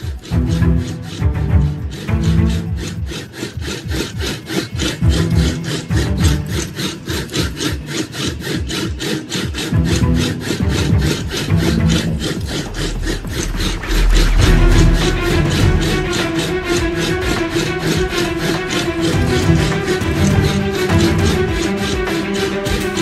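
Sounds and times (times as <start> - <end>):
scratchy rhythmic strokes: 0.0 - 23.0
held low bass notes: 0.3 - 3.0, 5.0 - 6.7, 9.7 - 23.0.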